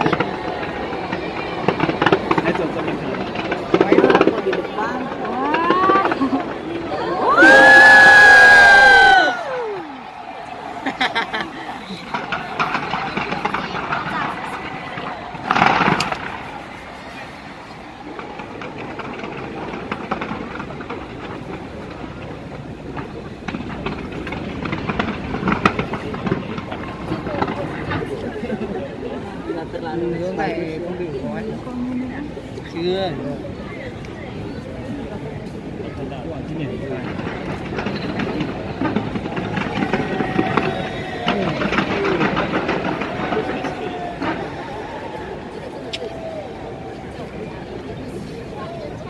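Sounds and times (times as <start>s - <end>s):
distant fireworks bangs: 0.0s - 29.2s, 36.4s - 49.0s
fireworks crackling pops: 0.0s - 29.8s, 33.9s - 49.0s
crowd voices: 0.0s - 49.0s.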